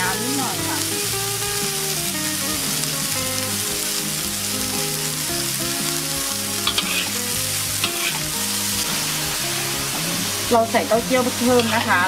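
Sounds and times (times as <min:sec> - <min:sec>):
soft background music: 0:00.0 - 0:12.0
vegetables sizzling in a wok: 0:00.0 - 0:12.0
metal spatula scraping wok: 0:06.3 - 0:12.0.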